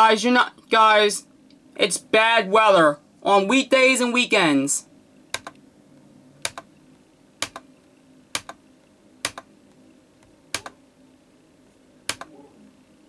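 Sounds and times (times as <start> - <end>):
faint steady hum: 0.0 - 13.0
computer mouse clicking: 5.3 - 5.6, 6.4 - 6.7, 7.4 - 7.7, 8.3 - 8.6, 9.2 - 9.5, 10.5 - 10.8, 12.1 - 12.3.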